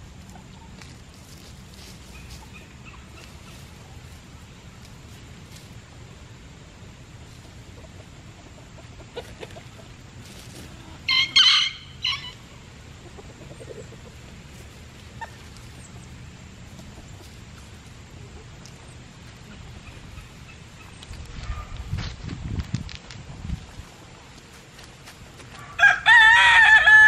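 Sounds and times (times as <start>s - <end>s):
chicken shrill call: 11.1s - 12.4s.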